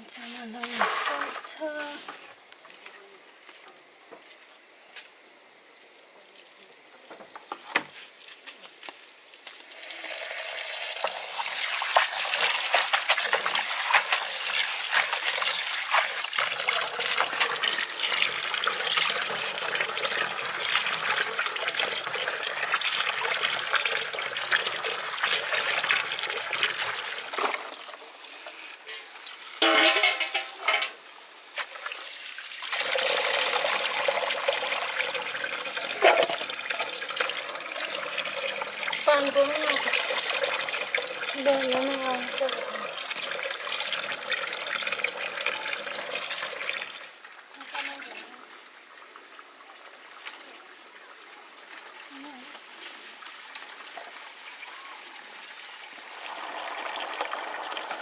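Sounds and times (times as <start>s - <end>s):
water splashing in basin: 8.1s - 28.2s, 28.8s - 48.5s
water running from tap: 9.5s - 48.6s, 49.8s - 58.0s.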